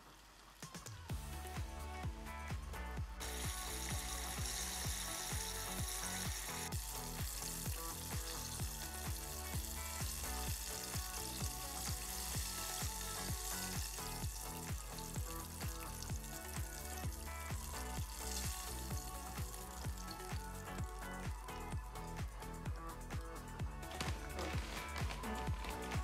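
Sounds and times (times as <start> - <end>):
background music with steady beat: 0.1 - 26.0
food deep-frying in hot oil: 3.4 - 20.5.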